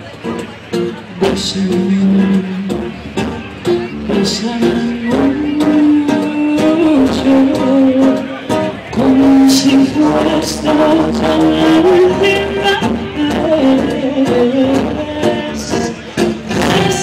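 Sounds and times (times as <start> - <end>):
plucked guitars: 0.0 - 17.0
woman singing: 9.0 - 15.9, 16.5 - 17.0.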